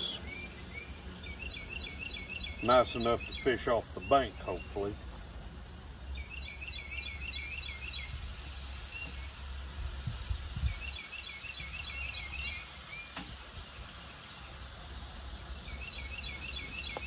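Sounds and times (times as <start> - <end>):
songbird chirping: 0.0 - 5.2, 5.9 - 9.5, 10.6 - 13.2, 15.4 - 17.0
wind rumble on microphone: 9.6 - 11.0.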